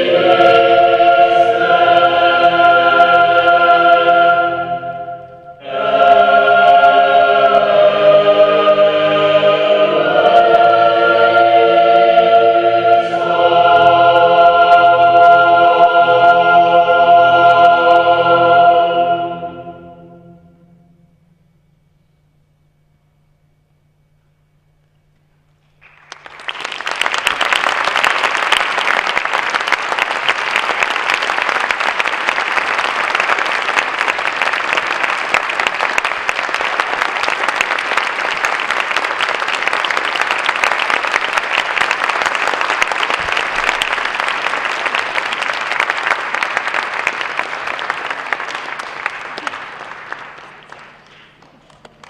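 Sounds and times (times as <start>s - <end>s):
audience applauding: 25.8s - 52.0s.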